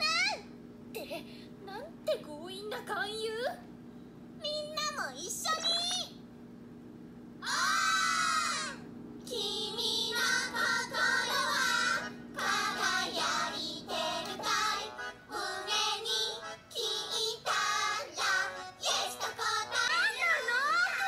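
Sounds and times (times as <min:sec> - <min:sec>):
childlike voices singing: 0:07.4 - 0:21.0
backing music: 0:10.2 - 0:19.8.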